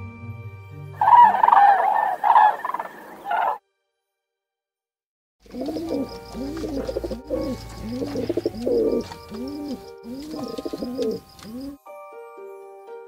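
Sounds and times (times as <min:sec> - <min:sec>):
pigeon cooing: 0:01.0 - 0:03.6, 0:05.4 - 0:11.8.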